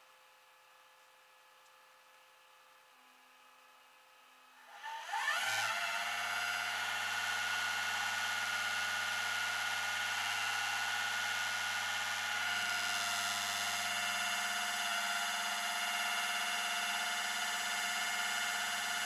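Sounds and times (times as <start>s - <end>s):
winch motor whining: 4.9s - 19.0s.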